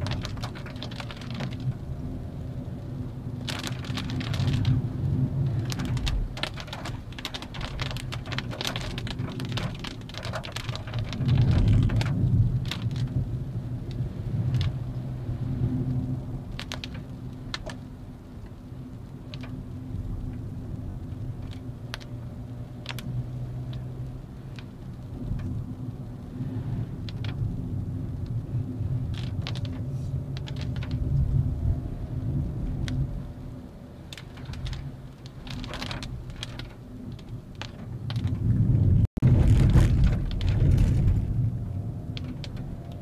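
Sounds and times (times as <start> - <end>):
car engine hum: 0.0 - 43.0
road rumble: 0.0 - 43.0.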